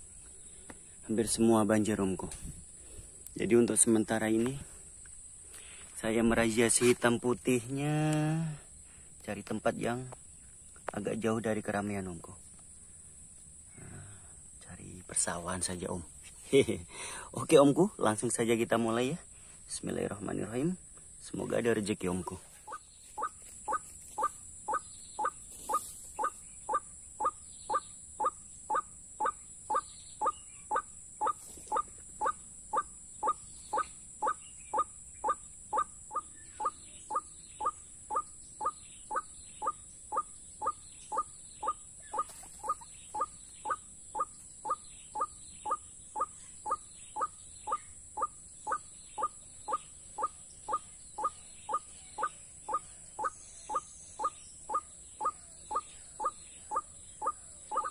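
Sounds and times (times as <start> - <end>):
steady high hiss: 0.0 - 54.7
bird call from speaker: 48.7 - 57.9.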